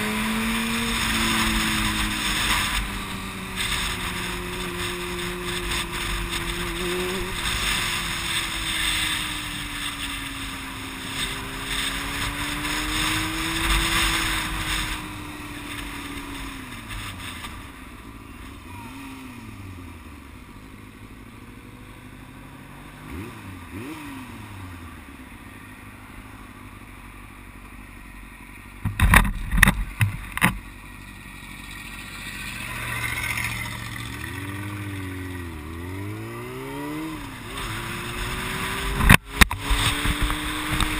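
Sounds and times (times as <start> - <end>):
motorcycle engine idling and revving: 0.0 - 40.9
wind rushing over microphone: 32.7 - 40.9.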